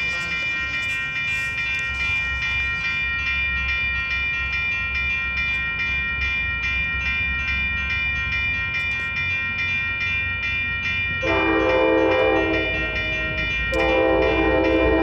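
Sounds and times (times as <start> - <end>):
crossing warning bell ringing: 0.0 - 15.0
train air horn blasts: 11.2 - 12.9, 13.7 - 15.0.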